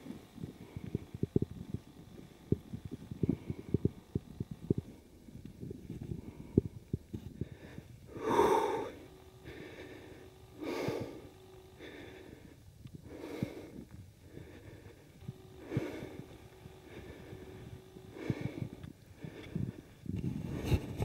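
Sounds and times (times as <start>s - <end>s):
heavy breathing: 6.1s - 21.0s.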